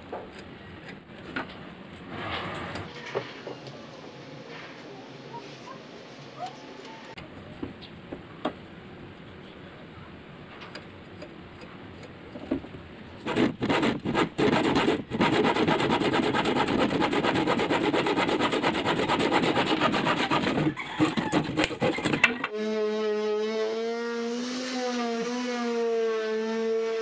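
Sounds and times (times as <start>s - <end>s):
hand saw cutting wood: 13.2s - 27.0s
electric sander humming: 22.6s - 27.0s.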